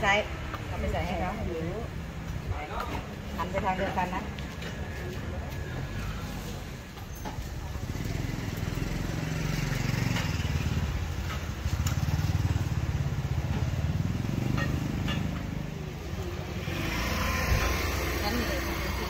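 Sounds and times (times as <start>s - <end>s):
engine droning: 7.8s - 19.0s.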